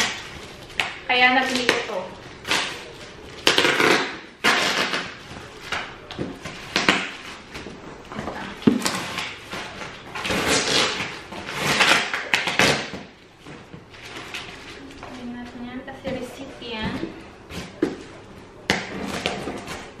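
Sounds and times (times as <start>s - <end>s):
tape and cardboard tearing: 0.0s - 7.6s, 8.6s - 13.1s, 18.7s - 20.0s.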